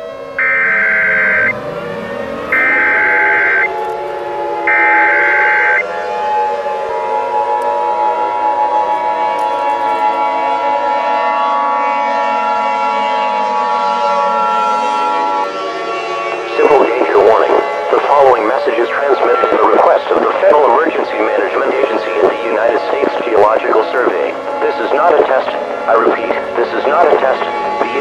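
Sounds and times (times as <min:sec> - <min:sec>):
siren wailing: 0:00.0 - 0:28.0
two-tone attention signal: 0:00.4 - 0:04.0, 0:04.7 - 0:05.9.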